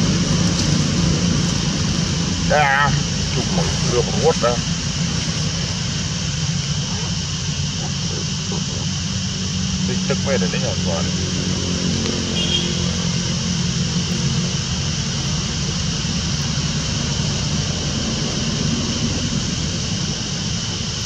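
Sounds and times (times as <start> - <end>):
high hiss: 0.0 - 21.0
low engine drone: 0.0 - 21.0.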